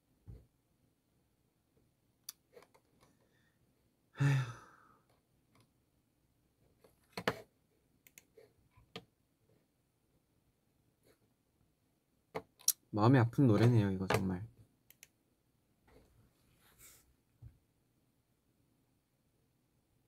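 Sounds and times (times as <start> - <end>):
person sighing: 4.2 - 5.1.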